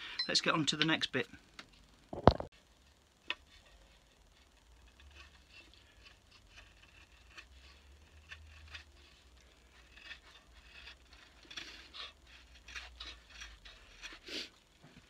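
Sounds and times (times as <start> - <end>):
knife scraping wood: 3.2 - 15.0.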